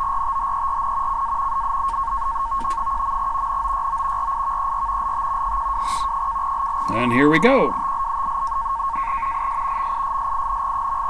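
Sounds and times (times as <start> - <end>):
pair of steady data tones: 0.0 - 11.0
radio band hiss: 5.6 - 8.1, 8.8 - 11.0.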